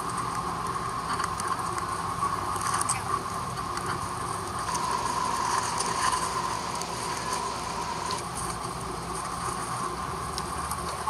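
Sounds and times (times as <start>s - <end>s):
airliner engine drone: 4.2s - 11.0s.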